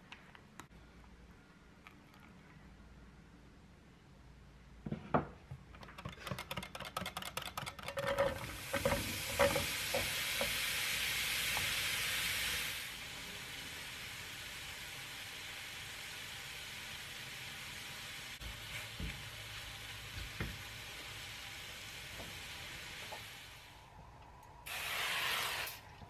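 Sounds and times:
apples sizzling in a frying pan: 0:08.1 - 0:23.9.

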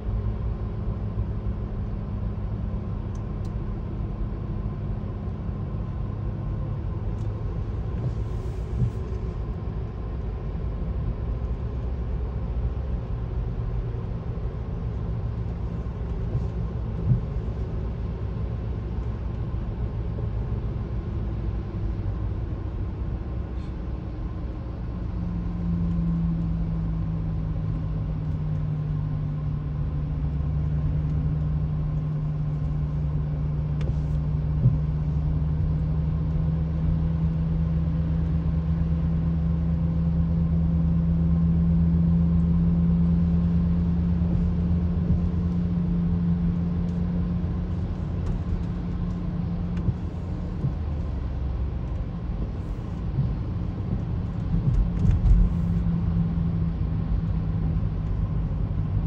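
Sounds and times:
road and engine rumble in car: 0:00.0 - 0:59.0
steady hum: 0:41.7 - 0:59.0.

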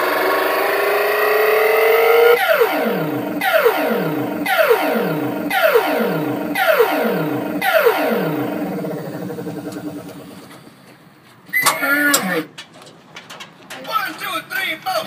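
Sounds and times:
arcade machine falling tone: 0:02.4 - 0:10.3, 0:11.5 - 0:12.5.

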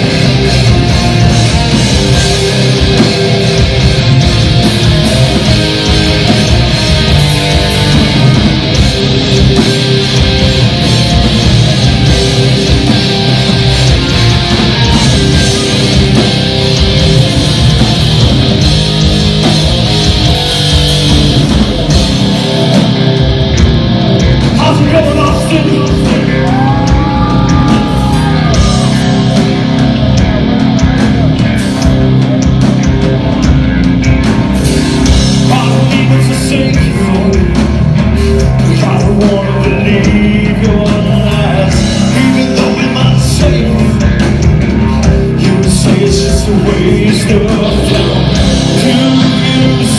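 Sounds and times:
live hard rock band: 0:00.0 - 0:49.9.

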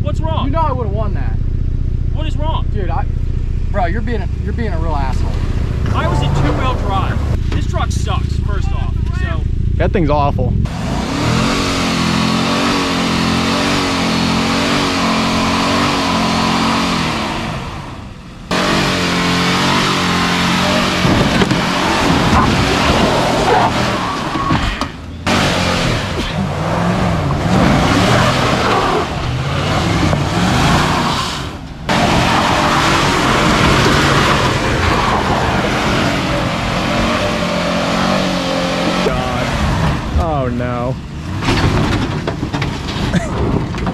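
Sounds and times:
continuous noisy rush: 0:00.0 - 0:43.9
pickup engine at high revs: 0:01.8 - 0:43.9.

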